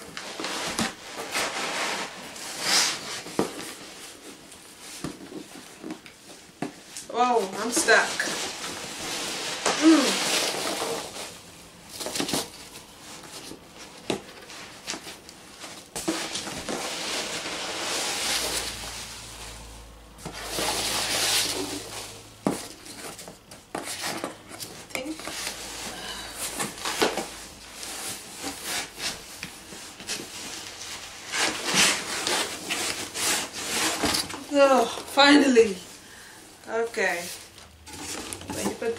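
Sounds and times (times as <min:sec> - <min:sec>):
cardboard scraping and knocking: 0:20.2 - 0:34.6, 0:37.8 - 0:38.9.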